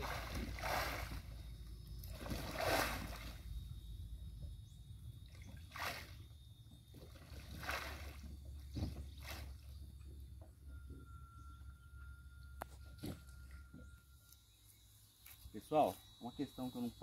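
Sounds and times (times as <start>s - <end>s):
paddle splashing into water: 0.0s - 1.4s, 2.0s - 3.4s, 5.4s - 6.2s, 7.0s - 9.6s.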